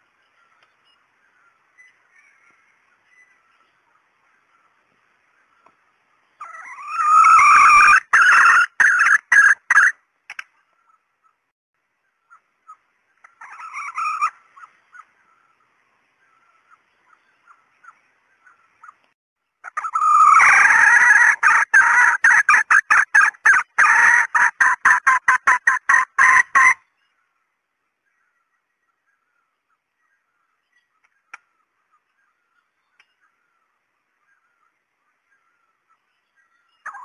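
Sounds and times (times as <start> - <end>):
hen cackling: 6.4 - 10.0, 12.3 - 15.2, 19.6 - 26.8.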